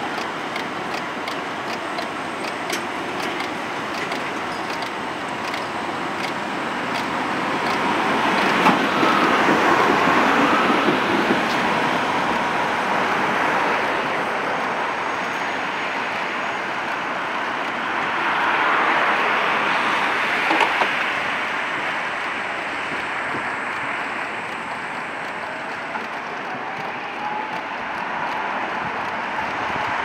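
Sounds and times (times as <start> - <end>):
tram motors and wheels on rails: 0.0 - 30.0
sharp ticks: 0.1 - 5.6, 6.2 - 7.8.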